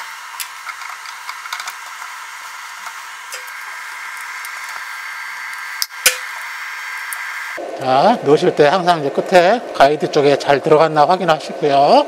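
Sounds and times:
steady hiss: 0.0s - 8.7s.

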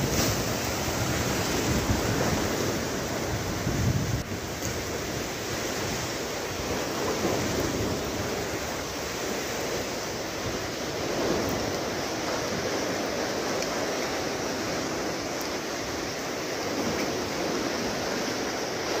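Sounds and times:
waves churning: 0.0s - 19.0s
wind blowing: 0.0s - 19.0s.

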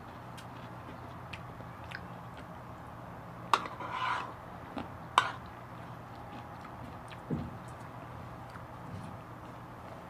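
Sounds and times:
spoon scraping across bowl: 3.6s - 4.4s.

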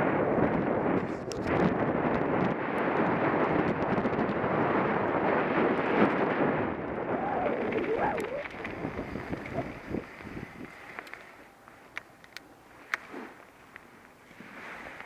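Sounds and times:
wind on microphone: 0.0s - 11.1s
bike tyres on gravel: 2.0s - 11.9s.

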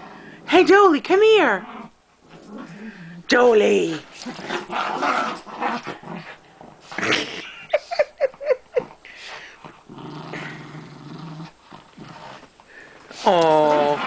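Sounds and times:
dogs growling: 1.5s - 3.3s, 4.0s - 7.8s, 8.7s - 14.0s.

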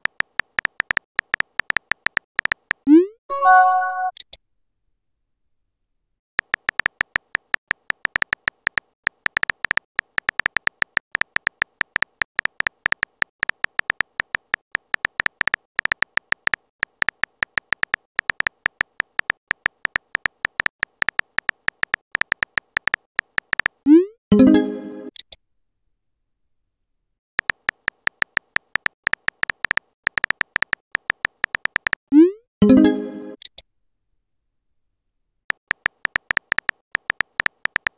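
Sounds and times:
keyboard typing clicks: 0.0s - 4.4s, 6.4s - 23.9s, 27.4s - 32.2s, 35.6s - 37.9s.

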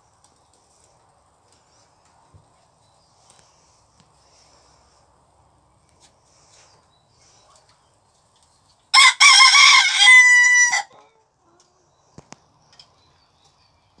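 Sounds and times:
rooster crowing: 8.9s - 11.0s.

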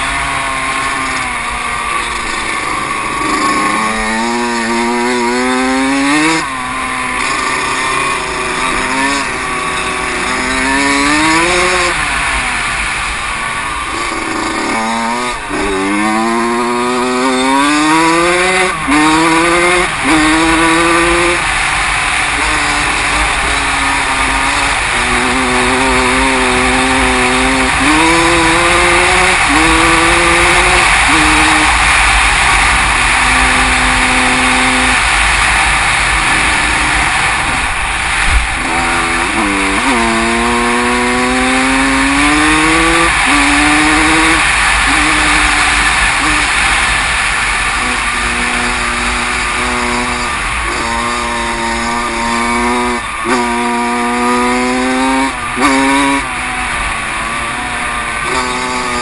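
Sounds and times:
motorcycle engine accelerating: 0.0s - 59.0s
wind rush on microphone: 22.3s - 39.4s.

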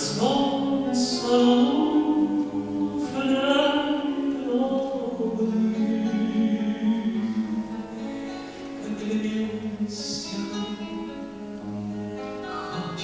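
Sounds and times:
man singing: 0.0s - 11.3s
classical guitar: 0.0s - 13.0s.

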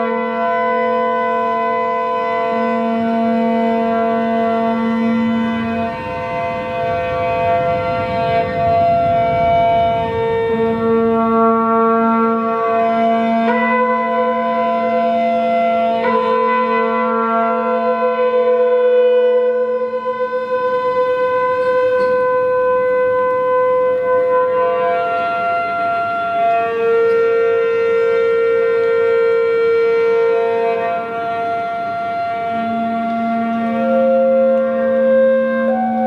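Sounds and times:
wind and brass sustained notes: 0.0s - 36.0s.

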